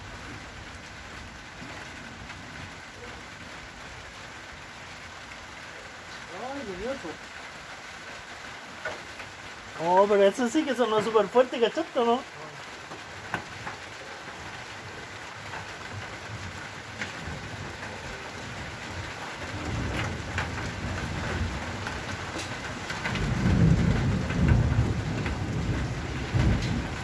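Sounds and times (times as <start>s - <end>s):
rain drops ticking on hard surface: 0.0s - 27.0s
thunder rumbling: 13.1s - 27.0s.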